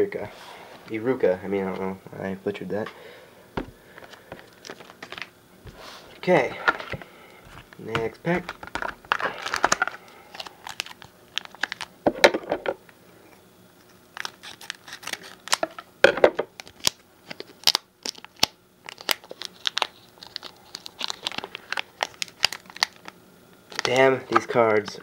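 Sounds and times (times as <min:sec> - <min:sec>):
wrapper crinkling and tearing: 0:04.5 - 0:05.3, 0:07.5 - 0:12.0, 0:14.1 - 0:15.9, 0:16.5 - 0:25.0.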